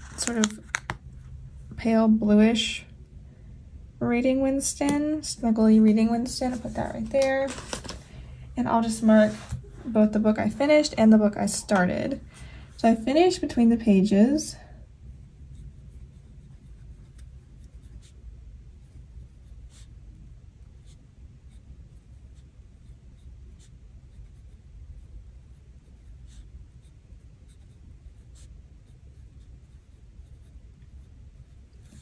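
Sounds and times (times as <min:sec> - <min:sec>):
pen scratching on paper: 0:15.5 - 0:20.0, 0:20.6 - 0:32.0.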